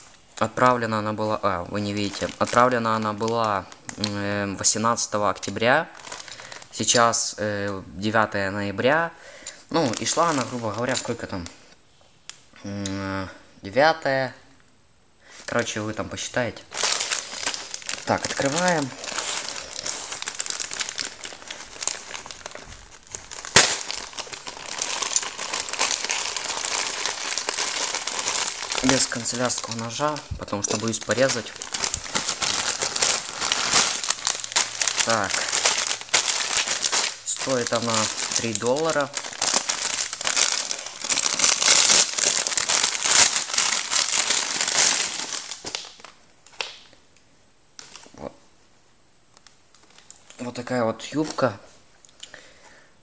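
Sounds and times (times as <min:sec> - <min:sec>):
plastic mailer bag crinkling: 0:01.4 - 0:07.0, 0:09.7 - 0:11.6, 0:16.6 - 0:46.8.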